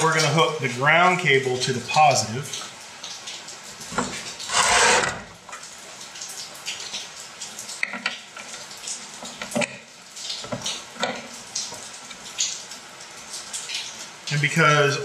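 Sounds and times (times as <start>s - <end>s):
heavy cable scraping on bench: 4.5s - 5.4s.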